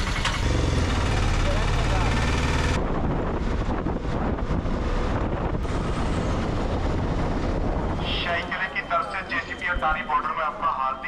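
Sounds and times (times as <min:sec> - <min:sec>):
auto-rickshaw engine running: 0:00.0 - 0:08.2
wind and road noise: 0:00.0 - 0:11.0.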